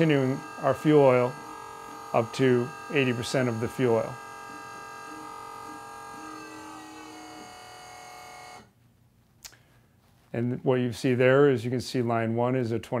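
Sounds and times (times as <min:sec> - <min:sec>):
electric pump motor whining: 0:00.0 - 0:08.7.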